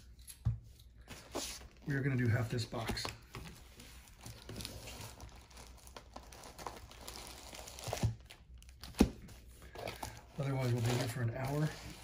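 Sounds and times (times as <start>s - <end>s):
wrappers crinkling: 4.0s - 8.9s, 9.6s - 12.0s.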